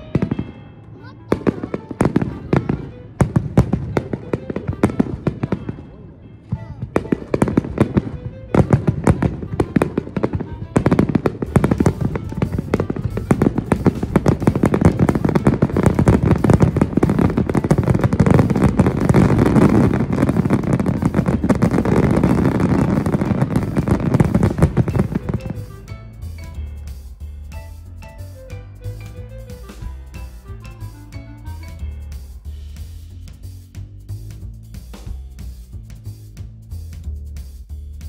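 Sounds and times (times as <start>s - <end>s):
fireworks bangs and crackling: 0.0s - 34.4s.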